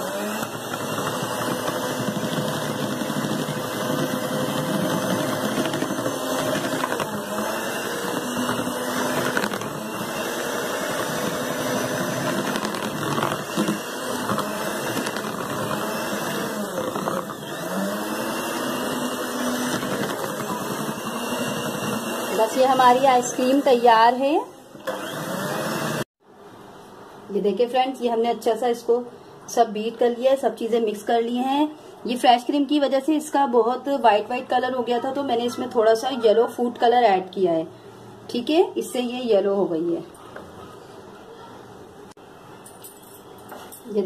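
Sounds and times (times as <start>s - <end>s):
electric hand mixer whirring: 0.0s - 26.1s.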